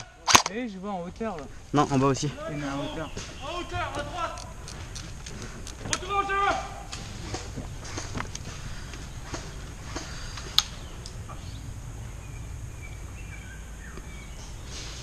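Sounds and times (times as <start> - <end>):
low steady rumble: 0.0 - 14.8
bird chirps: 2.3 - 4.6, 7.6 - 15.0.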